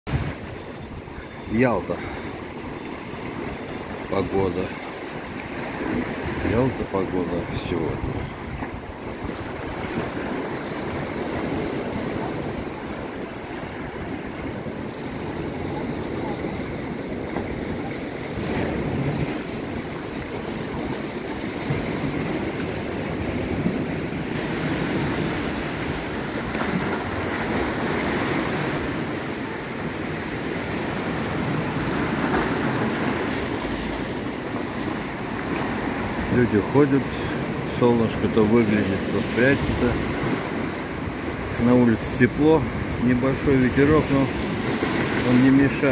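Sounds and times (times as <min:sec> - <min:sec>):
wind on microphone: 0:00.1 - 0:01.3, 0:07.7 - 0:36.3
sea waves washing ashore: 0:00.1 - 0:45.9.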